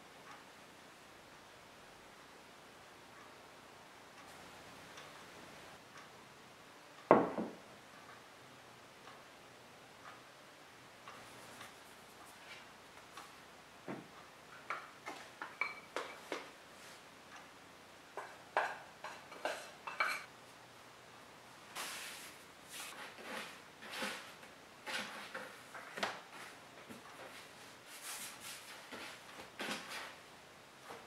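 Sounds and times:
dough swishing on wooden board: 0:21.8 - 0:26.6, 0:27.2 - 0:30.2
plastic scraper on ceramic bowl: 0:23.0 - 0:25.5.

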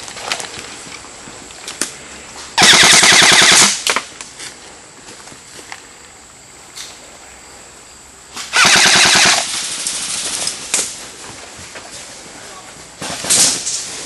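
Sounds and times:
airsoft rifle full-auto burst: 0:02.6 - 0:03.8, 0:08.5 - 0:10.0.

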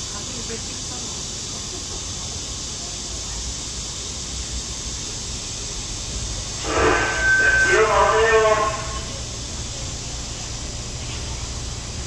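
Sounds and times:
train air-conditioning hiss and hum: 0:00.0 - 0:12.0
loud sound: 0:06.6 - 0:09.1.

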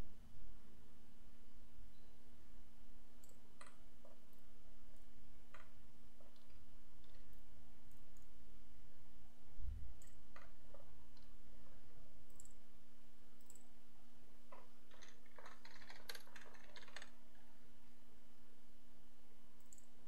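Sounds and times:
low electrical hum: 0:00.0 - 0:20.0
computer mouse clicks: 0:03.2 - 0:03.8, 0:06.3 - 0:08.3, 0:12.3 - 0:12.6, 0:13.4 - 0:13.7, 0:19.6 - 0:19.9.

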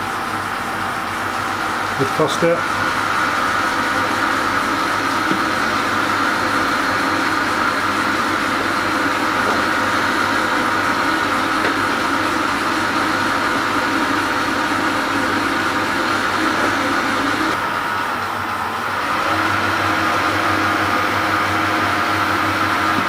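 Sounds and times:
metal lathe machining whine: 0:00.0 - 0:23.0.

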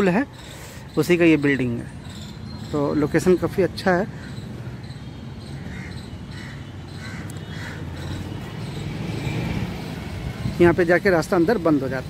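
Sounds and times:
crow cawing: 0:04.1 - 0:08.3.

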